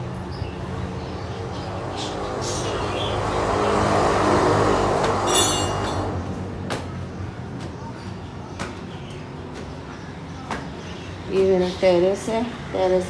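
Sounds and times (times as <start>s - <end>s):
motor vehicle passing: 0.0s - 8.7s.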